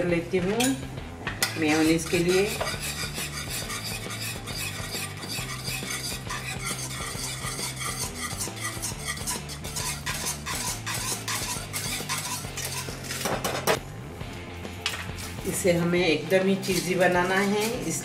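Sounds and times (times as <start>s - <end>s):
whisk scraping against pan: 1.5s - 13.7s, 16.3s - 18.0s.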